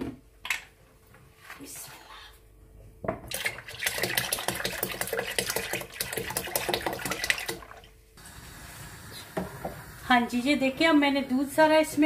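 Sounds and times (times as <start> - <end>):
milk pouring and glugging: 3.3 - 7.9.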